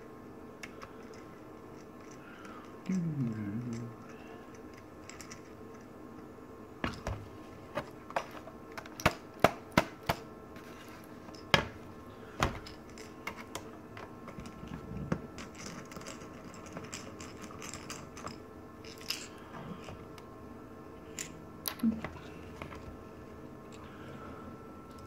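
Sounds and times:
faint steady hum: 0.0 - 25.0
small parts being handled: 0.6 - 3.0, 3.6 - 5.9, 10.6 - 20.2.

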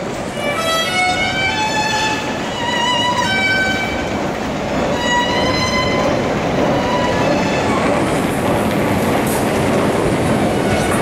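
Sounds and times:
metro station rumble: 0.0 - 11.0
violin playing slow melody: 0.3 - 4.1, 4.9 - 6.0, 6.8 - 7.7.

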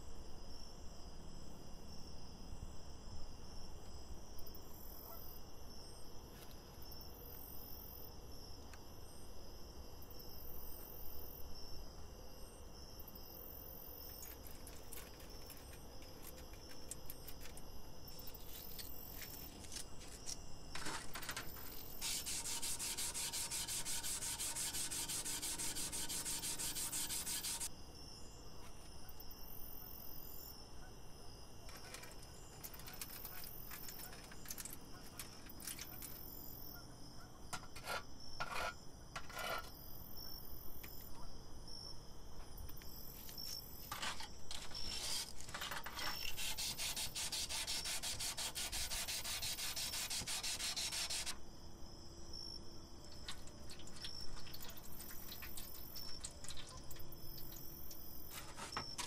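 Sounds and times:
hands scrubbing rusty metal: 18.3 - 27.7, 43.9 - 51.4, 58.3 - 59.0
rapid scraping: 18.3 - 27.7, 43.9 - 51.4
clicks and light knocks: 31.7 - 36.3.

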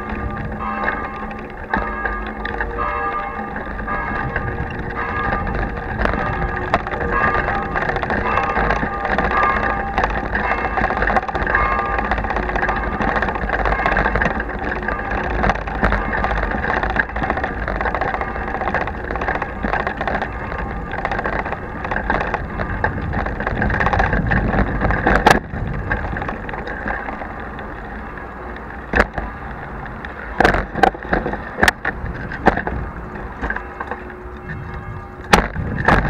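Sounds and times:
bicycle rattling over cobblestones: 0.0 - 36.0
bike knocking on bumps: 0.0 - 36.0.

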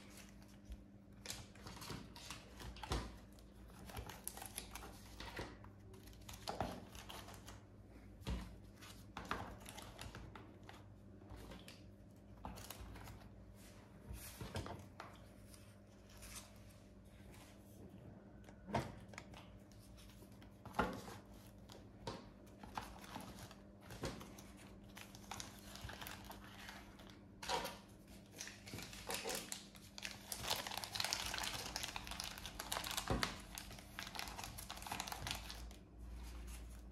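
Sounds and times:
plastic bags crinkling: 22.6 - 36.9.

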